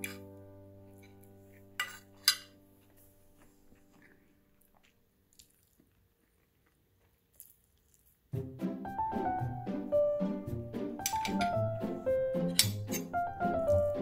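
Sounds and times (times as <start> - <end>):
held music chord: 8.4 - 14.0
metal fork clicking on plate: 12.5 - 13.1.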